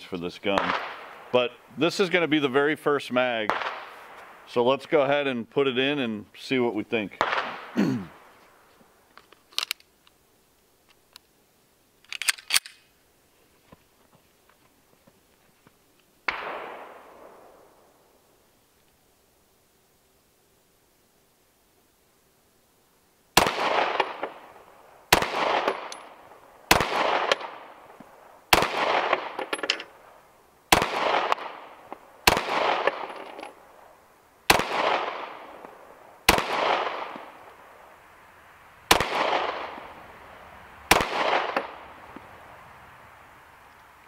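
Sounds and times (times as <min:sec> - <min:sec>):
pistol shots echoing: 0:00.5 - 0:01.3, 0:03.5 - 0:04.4, 0:07.2 - 0:08.3, 0:16.3 - 0:17.4, 0:23.4 - 0:27.7, 0:28.5 - 0:29.7, 0:30.7 - 0:33.3, 0:34.5 - 0:37.4, 0:38.9 - 0:40.0, 0:40.9 - 0:41.9.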